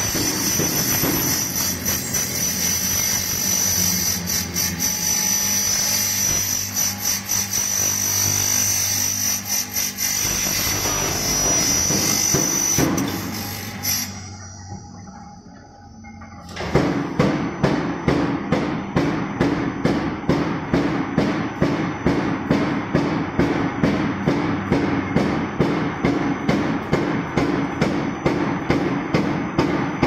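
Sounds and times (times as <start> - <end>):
machine hum with high whine: 0.0 - 30.0.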